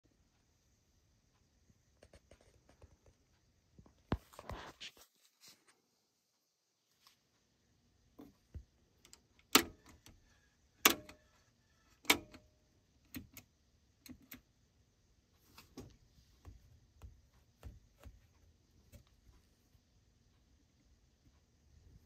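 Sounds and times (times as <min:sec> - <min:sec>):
pushbutton switches clicking: 0:09.0 - 0:10.1, 0:10.8 - 0:11.2, 0:12.0 - 0:12.4.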